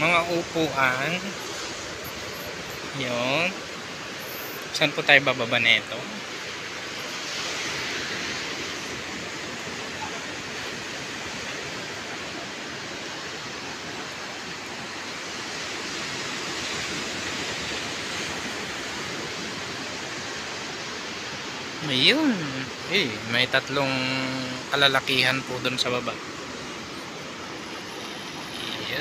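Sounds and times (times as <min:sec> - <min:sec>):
surf breaking on a beach: 0:00.0 - 0:29.0.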